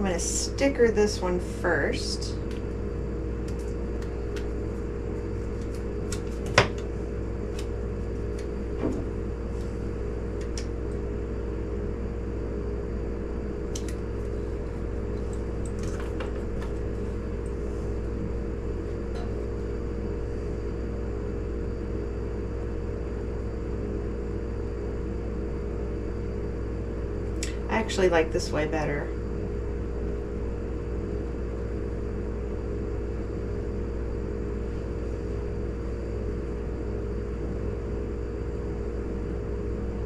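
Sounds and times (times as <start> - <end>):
low background hum: 0.0 - 40.0.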